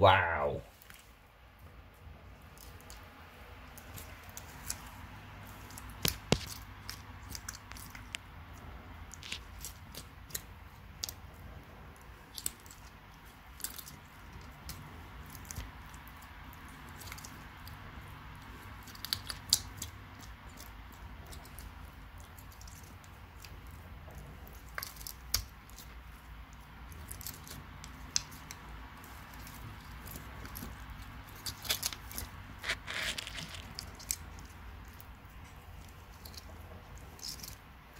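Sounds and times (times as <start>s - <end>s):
lizard chewing: 2.4s - 37.9s
snail shell cracking: 31.3s - 34.5s.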